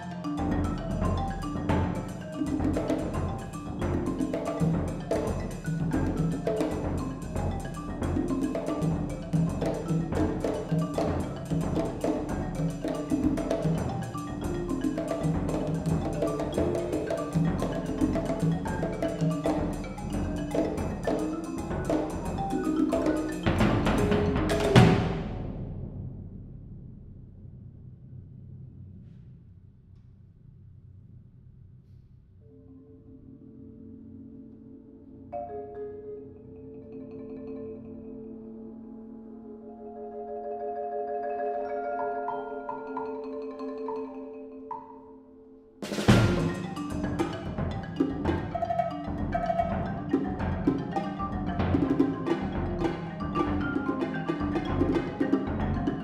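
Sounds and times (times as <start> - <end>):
quick marimba notes: 0.0 - 25.3, 35.4 - 56.0
hand-struck congas: 0.4 - 25.8, 45.8 - 56.0.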